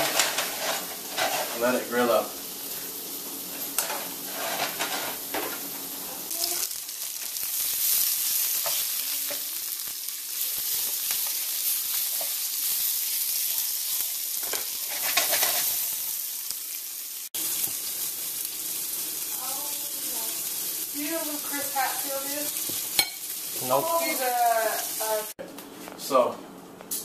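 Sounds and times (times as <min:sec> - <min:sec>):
spatula scraping the pan: 0:00.0 - 0:01.7, 0:04.2 - 0:05.3, 0:14.4 - 0:15.8
peppers sizzling in oil: 0:00.0 - 0:25.4.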